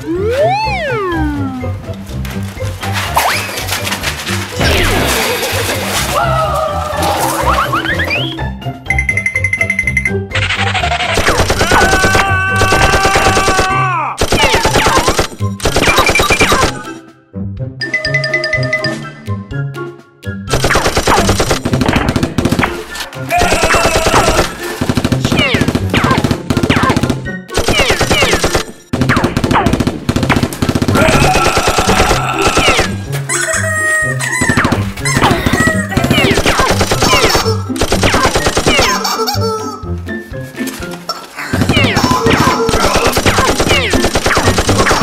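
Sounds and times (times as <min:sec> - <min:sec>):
falling whistling tones: 0:08.0 - 0:08.5
automatic gunfire bursts: 0:14.2 - 0:16.7, 0:20.5 - 0:22.8, 0:23.4 - 0:32.7, 0:35.5 - 0:39.0, 0:41.6 - 0:45.0.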